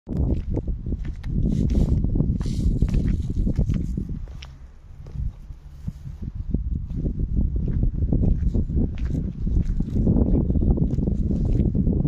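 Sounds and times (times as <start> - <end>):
footsteps on cobblestones: 0.1 - 5.4, 6.8 - 11.8
low rumble on microphone: 0.1 - 12.0.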